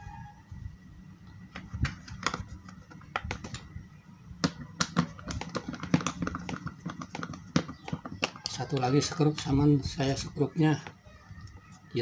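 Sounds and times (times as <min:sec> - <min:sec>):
plastic clicks and taps: 0:04.4 - 0:08.9.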